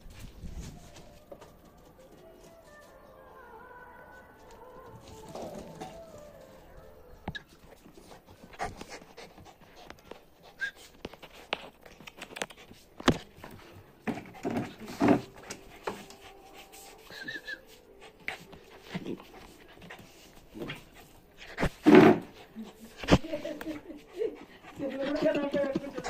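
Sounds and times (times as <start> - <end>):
dog panting: 7.1 - 26.0.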